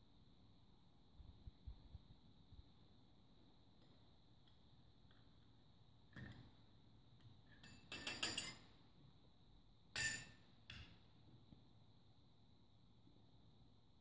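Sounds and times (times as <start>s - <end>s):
metal rods clinking against glasses: 7.6s - 8.6s, 10.0s - 10.8s.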